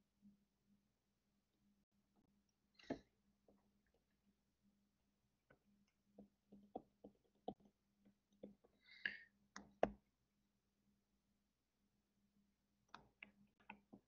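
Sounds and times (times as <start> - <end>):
stylus tapping on tablet screen: 5.5 - 10.0.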